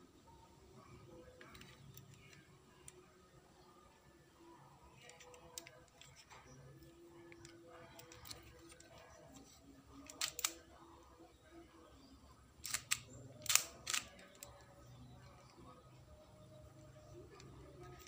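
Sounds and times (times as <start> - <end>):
sharp plastic clacks: 10.0 - 10.6, 12.6 - 14.6.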